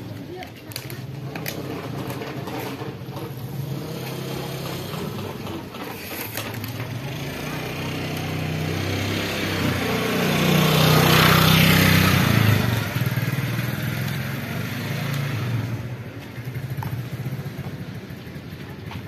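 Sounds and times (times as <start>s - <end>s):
motorcycle passing by: 1.0s - 19.0s.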